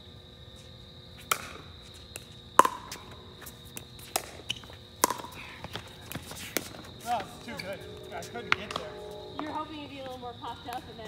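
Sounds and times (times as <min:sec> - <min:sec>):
faint high whine: 0:02.0 - 0:11.0.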